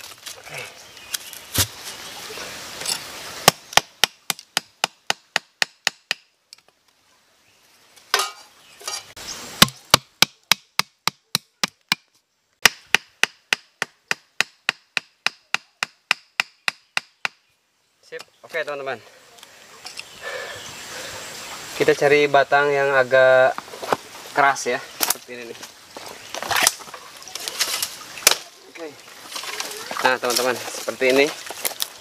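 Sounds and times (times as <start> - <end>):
hammering wooden stake into ground: 3.4 - 6.3, 9.6 - 17.5.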